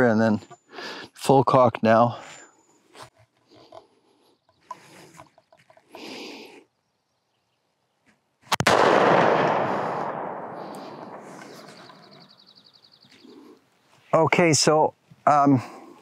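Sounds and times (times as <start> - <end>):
gunshot echoing: 8.5 - 12.2.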